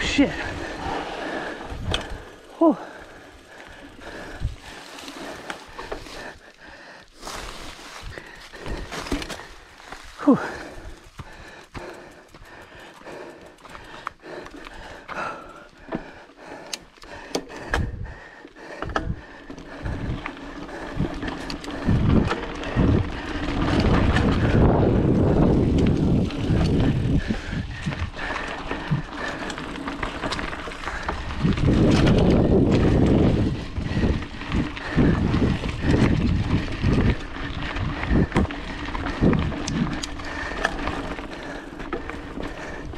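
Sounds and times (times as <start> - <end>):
wind buffeting microphone: 0.0 - 6.6, 17.2 - 42.9
bike clicks and rattles: 0.0 - 42.9
bike tyre noise on dirt: 0.0 - 42.9.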